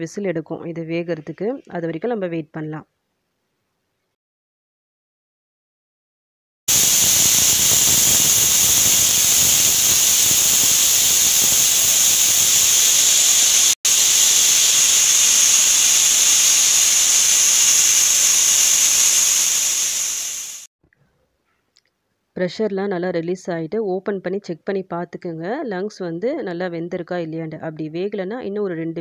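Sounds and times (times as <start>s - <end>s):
pressure cooker steam whistling: 6.7s - 20.7s.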